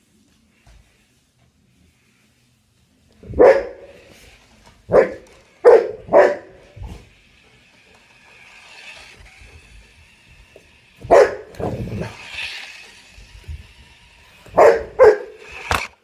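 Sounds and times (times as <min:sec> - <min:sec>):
large dog barking: 0:03.3 - 0:03.9, 0:04.9 - 0:06.6, 0:11.0 - 0:11.7, 0:14.5 - 0:15.4.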